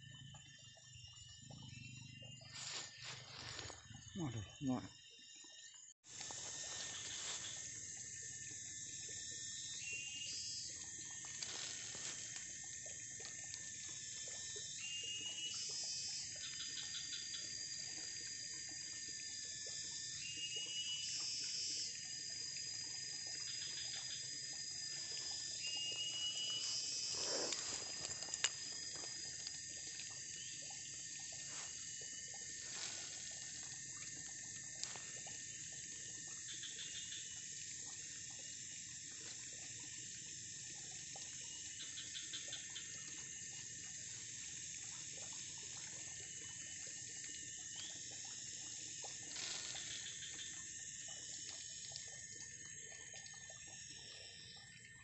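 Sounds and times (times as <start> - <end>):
thin constant whine: 0.0 - 55.0
steady high hiss: 25.2 - 29.4.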